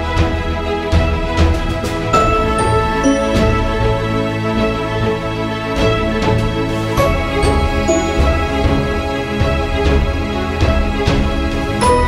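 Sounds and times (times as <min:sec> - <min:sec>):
steady drum beat: 0:00.0 - 0:12.0
sustained chords: 0:02.1 - 0:12.0.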